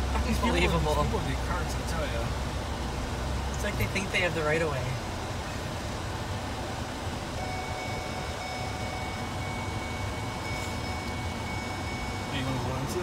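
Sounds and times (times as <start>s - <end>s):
car engine and road rumble: 0.0s - 13.0s
faint high whine: 7.3s - 13.0s.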